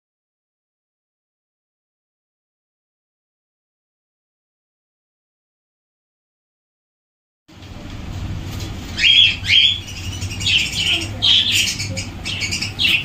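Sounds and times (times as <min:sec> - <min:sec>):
low steady rumble: 0:07.5 - 0:13.0
parakeets calling: 0:08.6 - 0:13.0.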